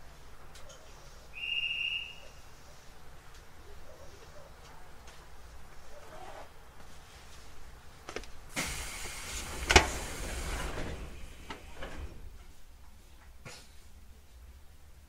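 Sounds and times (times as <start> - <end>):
sliding doors thudding shut: 8.5 - 12.5
train doors hissing: 8.5 - 12.6.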